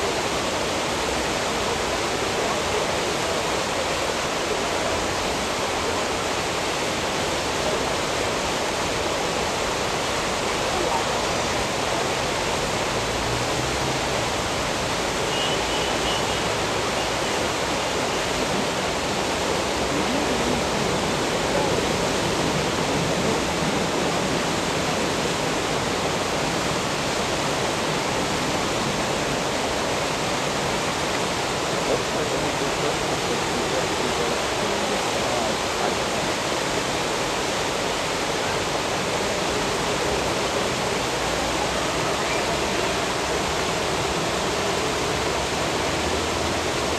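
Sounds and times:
turbulent water churning: 0.0 - 46.9.

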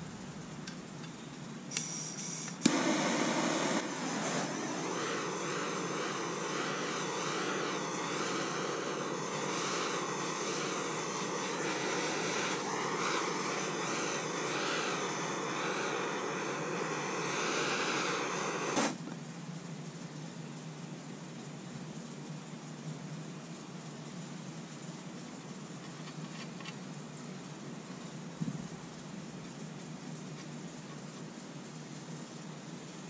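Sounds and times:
gas torch flame hissing: 0.0 - 19.3
faint steady tone: 0.0 - 25.6
gas torch lighting pop: 1.7 - 19.2.

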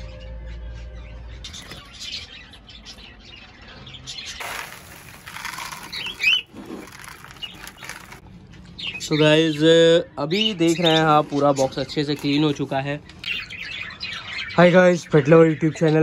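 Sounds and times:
bird chirps: 0.0 - 16.0
birds fluttering wings: 4.4 - 8.2.

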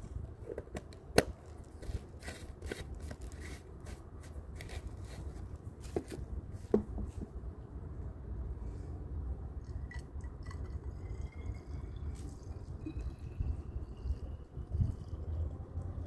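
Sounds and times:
wind rumble on microphone: 11.2 - 16.0.

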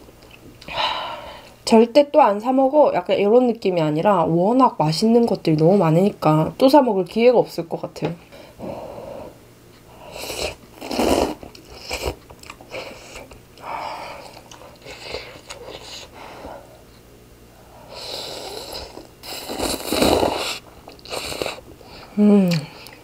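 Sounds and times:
person slurping noodles: 10.0 - 13.3, 17.9 - 21.6
person chewing: 10.1 - 16.1, 18.2 - 21.7.

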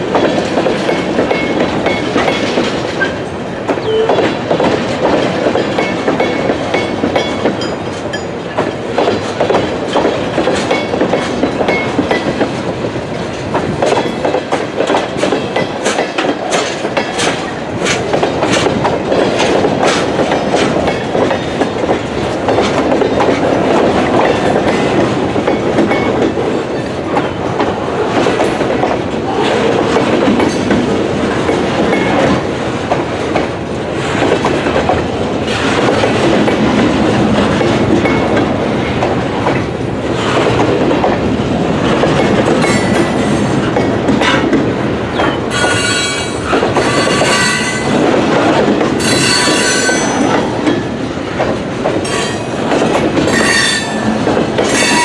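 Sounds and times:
freight train wheels rumbling on rail: 0.0 - 55.0
wheels clicking over rail joints: 0.0 - 55.0
high-pitched wheel squeal: 53.4 - 54.0.

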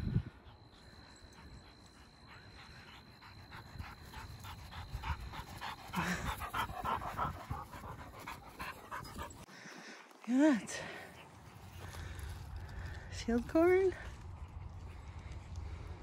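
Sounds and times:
dog panting: 0.3 - 9.6.

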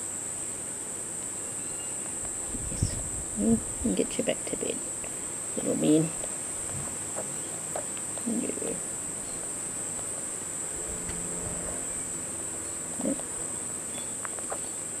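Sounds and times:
high-pitched hum: 6.7 - 14.3.

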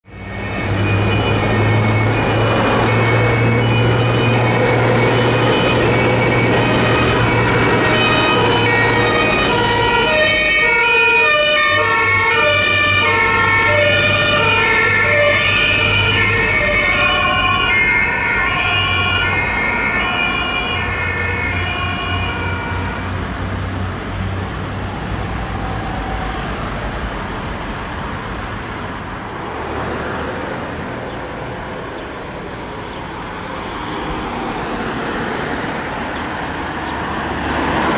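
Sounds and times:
two-tone emergency sirens: 0.0 - 28.4
road traffic noise: 0.0 - 37.9.

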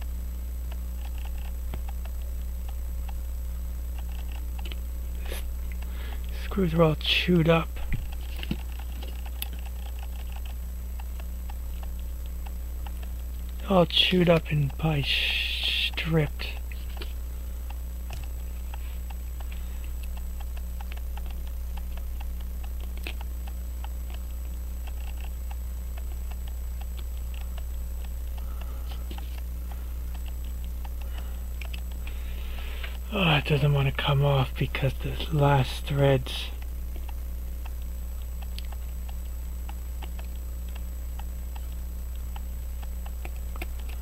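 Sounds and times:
low hum: 0.0 - 44.0.

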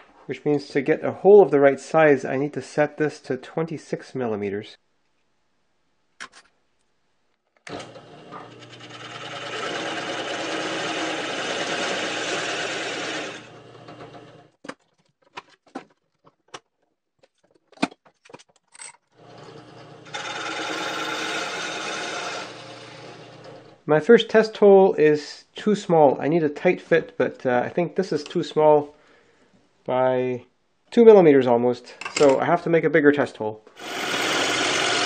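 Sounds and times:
drill press cutting plywood: 7.7 - 14.4, 19.2 - 23.6, 33.8 - 35.0.

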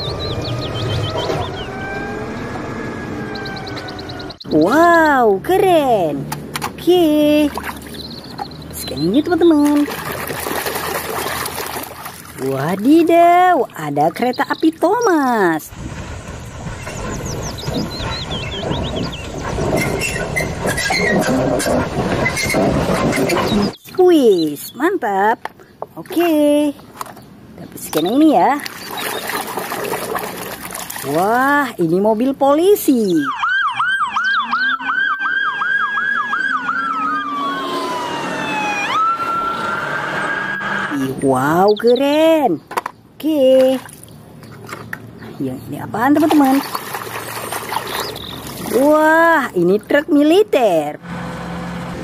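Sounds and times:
police sirens wailing: 0.0 - 4.6, 33.1 - 41.2
bird chirping: 0.0 - 4.9, 7.4 - 9.8, 12.6 - 15.6, 16.5 - 24.9, 26.6 - 30.2, 34.0 - 34.9, 40.9 - 43.2, 44.0 - 49.0
steam locomotive rumbling: 15.6 - 23.8.

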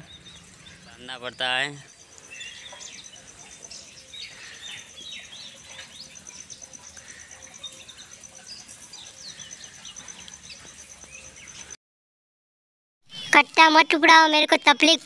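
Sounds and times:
birds chirping: 0.0 - 11.8, 13.1 - 15.0
high insect trill: 0.1 - 11.8.

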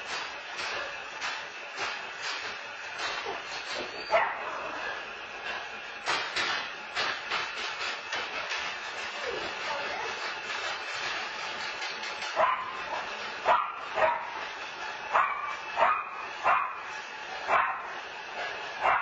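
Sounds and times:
small dog barking: 4.1 - 4.5, 12.4 - 14.4, 15.1 - 16.8, 17.5 - 17.9.

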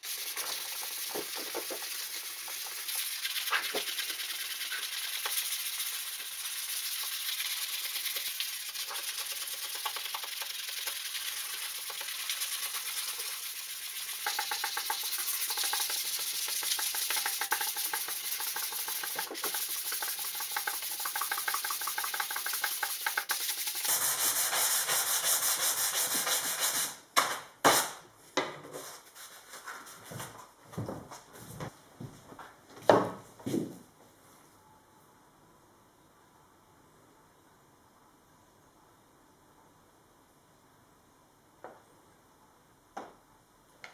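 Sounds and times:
sandpaper rubbing on wood: 10.5 - 27.0.

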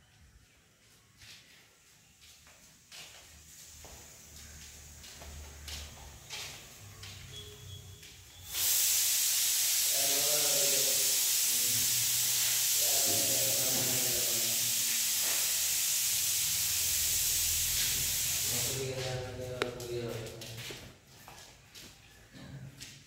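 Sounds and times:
loud steady hiss: 1.7 - 20.0.

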